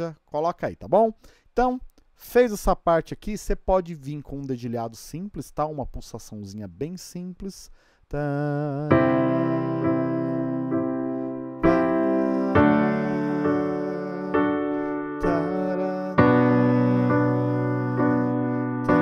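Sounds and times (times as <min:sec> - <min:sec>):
keyboard piano chords: 0:08.9 - 0:19.0.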